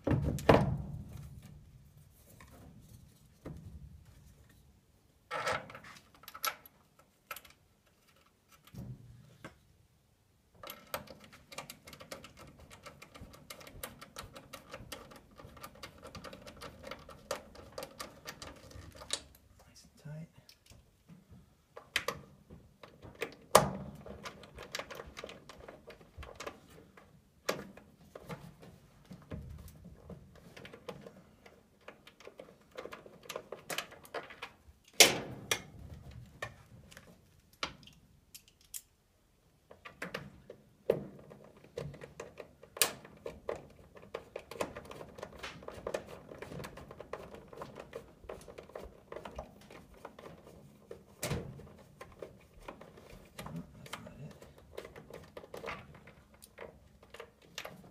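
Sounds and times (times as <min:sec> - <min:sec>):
hands clicking and tapping on wiring: 0:05.3 - 0:09.6, 0:10.5 - 0:19.7, 0:20.4 - 0:57.9.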